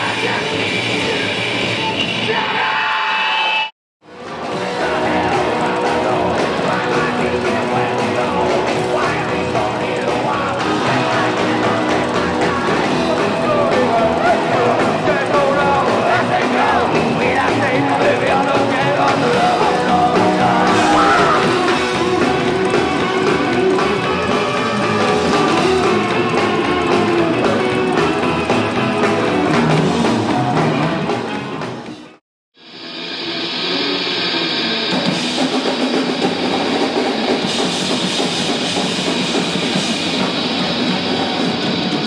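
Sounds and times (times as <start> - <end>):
electric guitar: 0.0 - 42.0
live rock band: 0.0 - 42.0
driving drum beat: 4.0 - 32.2, 33.3 - 42.0
upright bass: 4.2 - 31.8.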